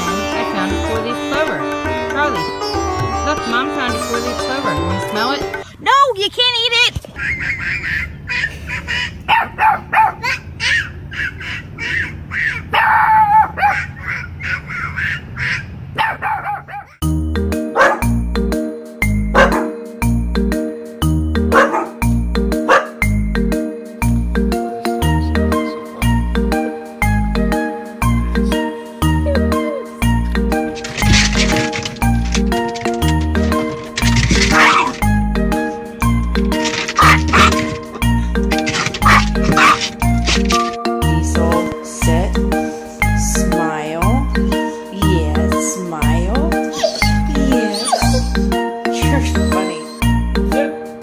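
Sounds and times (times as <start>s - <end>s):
puppy barking: 7.2s - 17.0s, 17.7s - 18.2s, 19.4s - 19.8s, 21.5s - 22.0s, 22.7s - 23.0s, 30.7s - 35.2s, 36.5s - 40.8s, 46.6s - 48.4s, 49.4s - 50.2s.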